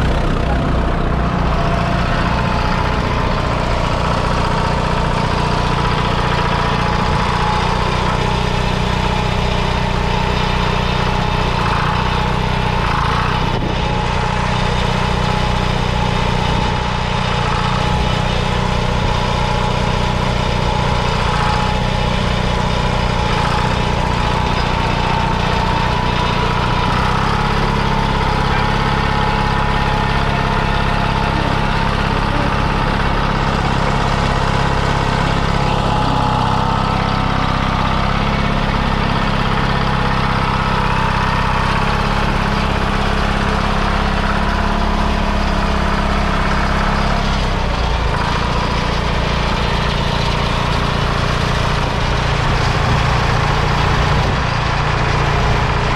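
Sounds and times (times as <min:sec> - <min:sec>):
diesel engine running: 0:00.0 - 0:55.9.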